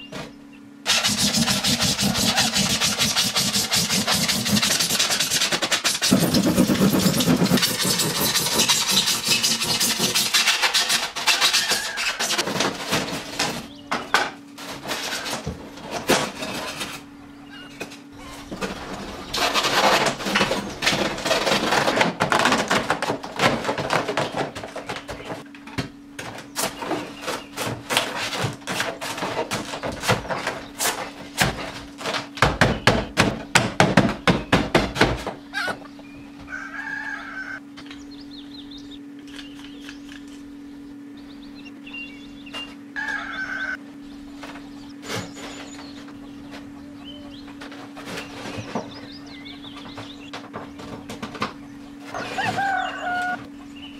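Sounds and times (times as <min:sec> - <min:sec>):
marker squeaking on polystyrene: 0:00.9 - 0:12.4.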